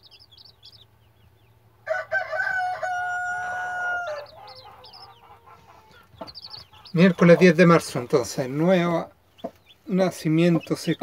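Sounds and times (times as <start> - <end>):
chicks peeping softly: 0.0 - 11.0
rooster crowing: 1.8 - 6.0.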